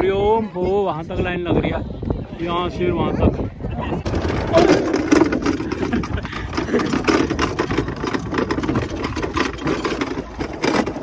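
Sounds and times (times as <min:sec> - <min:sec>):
sled rattling rumble on track: 0:03.2 - 0:11.0.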